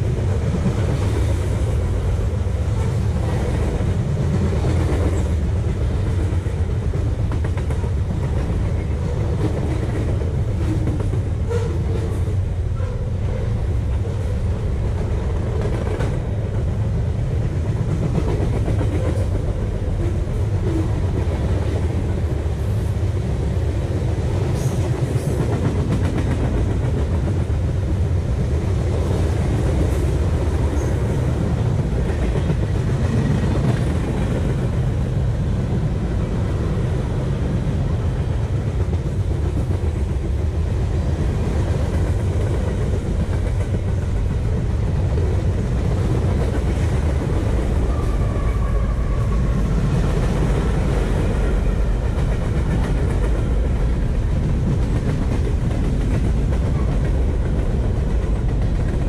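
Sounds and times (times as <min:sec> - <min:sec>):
train wheels rumbling on rail: 0:00.0 - 0:59.0.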